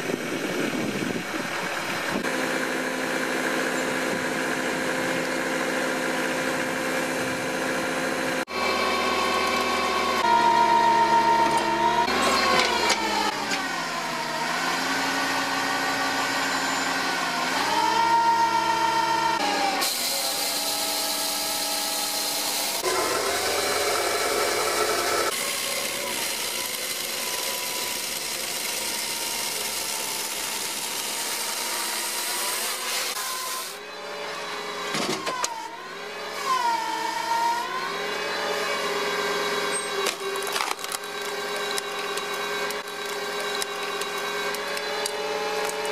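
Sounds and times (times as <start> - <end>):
firewood processor engine running: 0.0 - 45.9
harsh cutting sound: 19.4 - 33.8, 38.7 - 45.9.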